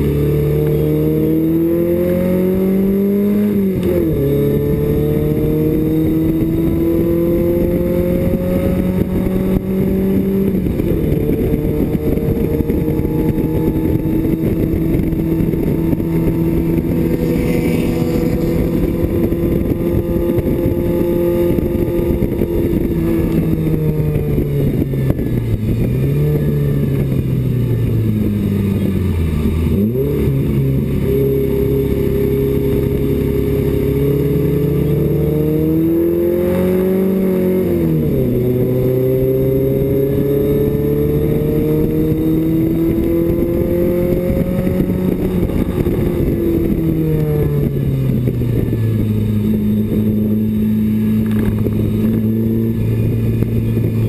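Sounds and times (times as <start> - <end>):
race car engine revving: 0.0 - 27.1
road and wind noise: 0.0 - 54.0.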